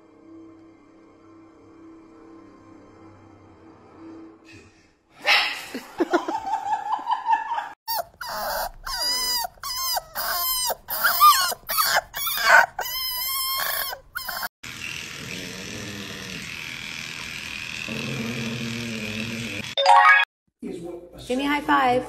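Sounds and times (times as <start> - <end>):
puppies whimpering: 7.9 - 14.5.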